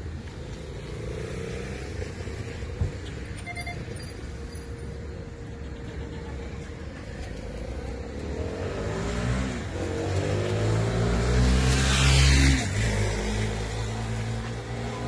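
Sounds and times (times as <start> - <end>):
vehicle engine revving: 7.3 - 15.0.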